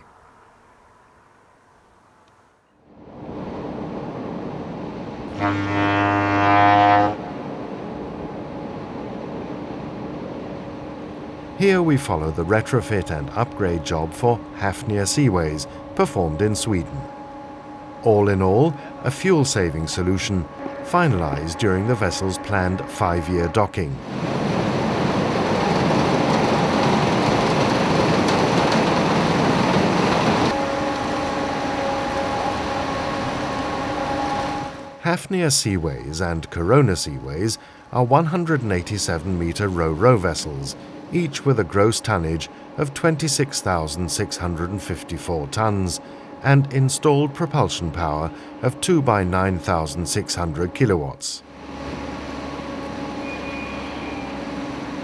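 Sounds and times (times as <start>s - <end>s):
ship's horn blast: 4.8s - 27.2s, 29.4s - 55.0s
machinery hum with held tones: 7.3s - 23.0s, 35.6s - 55.0s
water rushing against ship hull: 24.0s - 35.0s
faint hum: 30.5s - 55.0s.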